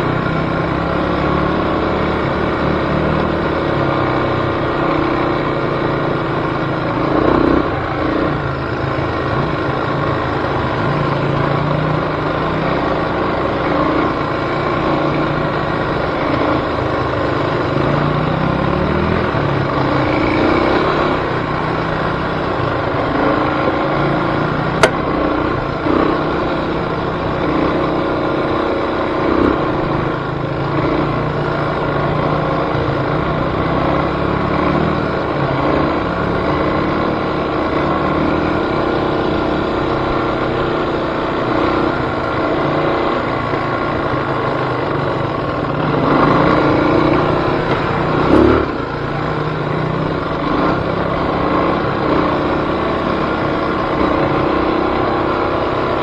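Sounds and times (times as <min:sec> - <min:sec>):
off-road vehicle engine: 0:00.0 - 0:56.0
short thump: 0:24.8 - 0:25.0.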